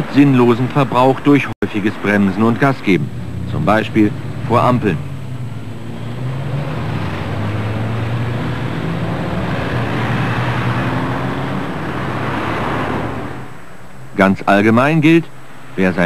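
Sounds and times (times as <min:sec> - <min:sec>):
cars driving off: 0:00.0 - 0:16.0
engine hum: 0:00.0 - 0:16.0.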